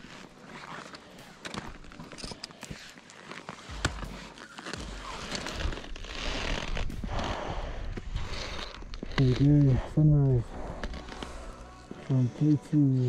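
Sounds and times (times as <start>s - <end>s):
jacket rustle: 0.0s - 7.3s.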